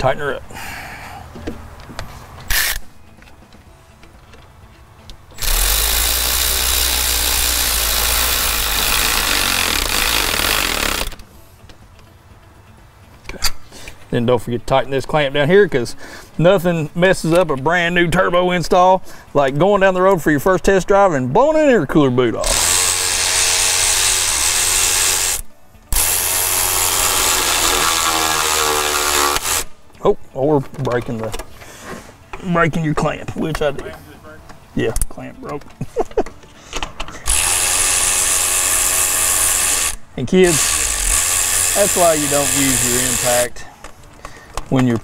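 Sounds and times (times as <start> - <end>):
impact wrench hammering: 5.4 - 11.2, 22.4 - 29.8, 37.3 - 43.5.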